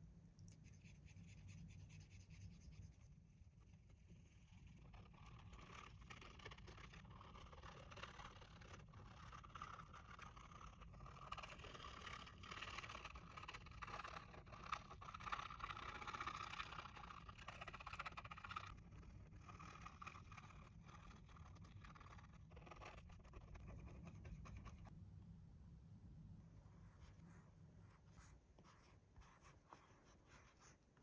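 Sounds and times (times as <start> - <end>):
faint scraping and rustling: 26.4 - 31.0.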